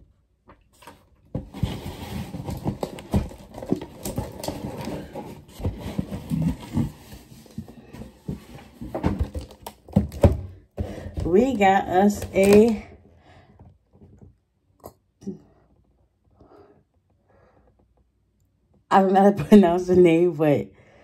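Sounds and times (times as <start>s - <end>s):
cardboard scraping and rustling: 0.7s - 10.4s.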